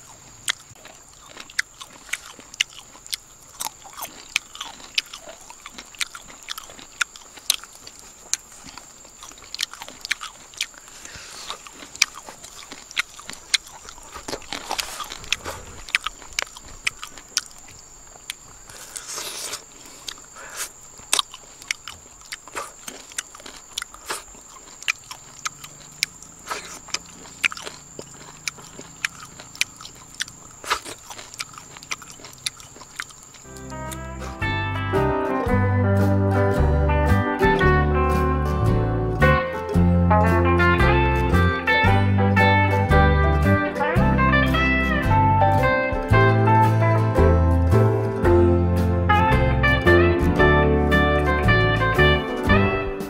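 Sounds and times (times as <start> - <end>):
mouth clicks: 0.0 - 34.4
biting and chewing crunches: 0.0 - 34.5.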